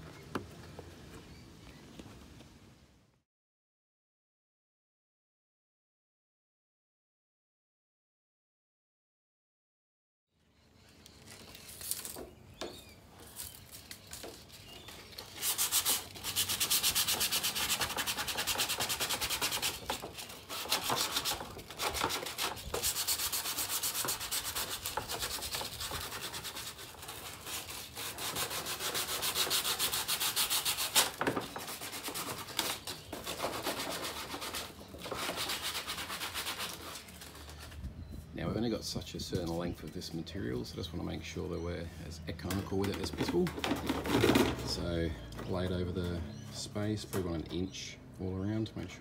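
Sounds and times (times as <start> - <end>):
sandpaper scuffing plastic: 11.2 - 12.3, 13.2 - 37.8.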